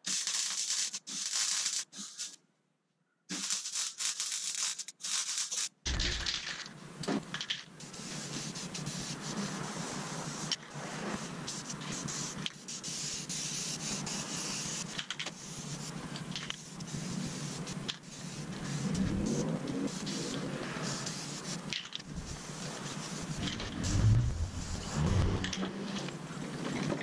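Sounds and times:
spray paint can hissing: 0.0s - 2.4s, 3.3s - 5.8s, 7.8s - 25.6s
low bump: 23.4s - 25.7s.

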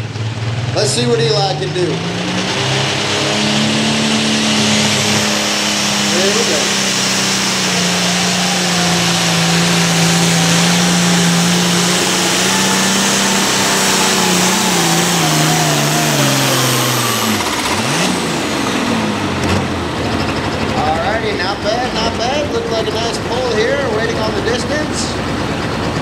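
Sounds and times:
tractor diesel engine straining: 0.0s - 26.0s.

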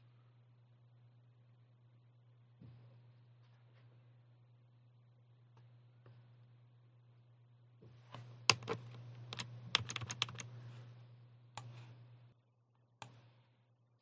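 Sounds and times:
low electrical hum: 0.0s - 14.0s
keyboard keys clicking: 8.5s - 10.5s.

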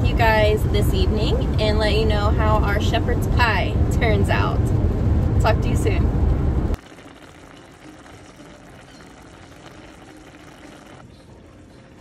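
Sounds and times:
car road noise: 0.0s - 6.8s
pan simmering with soft bubbling: 6.8s - 12.0s.

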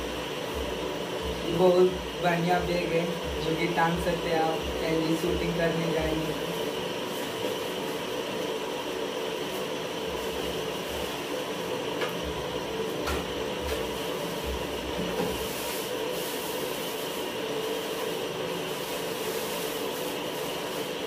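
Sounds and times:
steady background hum: 0.0s - 21.0s
plastic wrapping crinkling: 15.0s - 21.0s.

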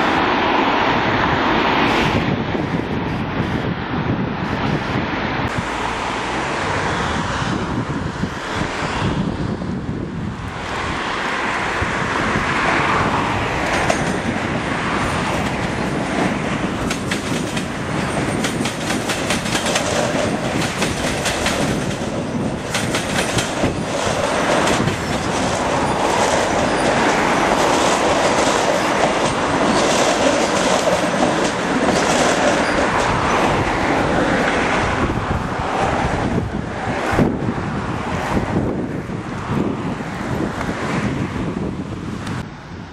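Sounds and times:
electric trains rumbling: 0.0s - 42.9s
train wheels clickety-clack: 13.6s - 14.4s, 15.1s - 33.5s.

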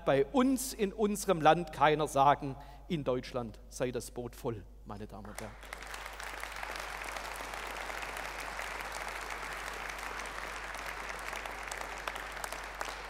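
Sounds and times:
audience applauding: 5.3s - 13.0s.

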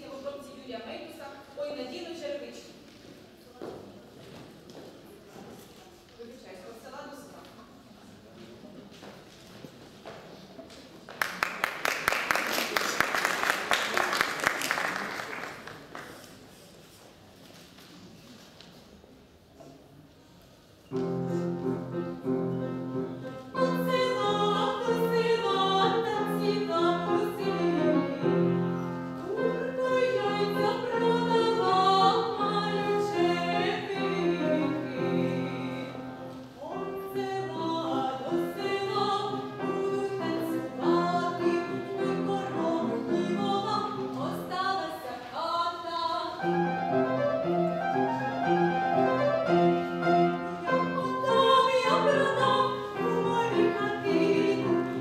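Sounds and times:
woman singing classical solo: 23.5s - 28.4s, 29.2s - 47.0s, 50.6s - 55.0s
upright piano: 46.4s - 55.0s.

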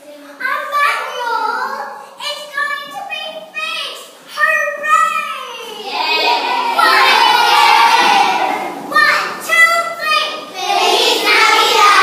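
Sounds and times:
children singing: 5.7s - 9.4s, 10.3s - 12.0s.

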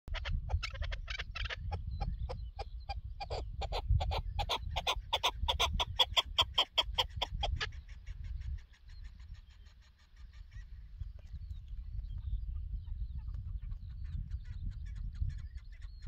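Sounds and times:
partridge calling: 0.1s - 16.0s
wind rumble on microphone: 0.1s - 16.0s.

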